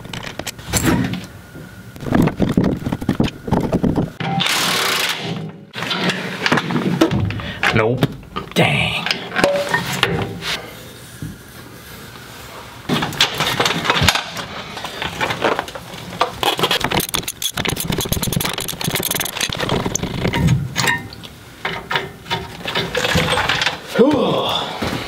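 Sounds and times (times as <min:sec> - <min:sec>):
ratchet clicks: 0:16.4 - 0:20.4.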